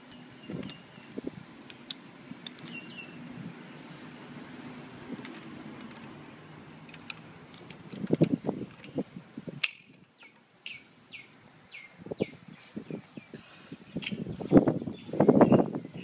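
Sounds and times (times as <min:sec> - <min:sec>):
bird chirping: 0:00.1 - 0:01.1, 0:02.6 - 0:03.8, 0:10.2 - 0:16.0
camera plate clicks and rattles: 0:06.8 - 0:09.0
sharp clamp snap: 0:09.6 - 0:10.0.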